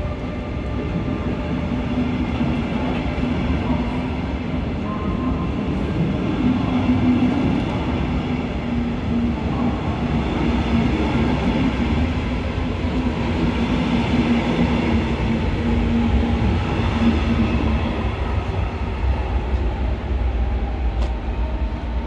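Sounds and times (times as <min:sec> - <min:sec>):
train hum: 0:00.0 - 0:22.0.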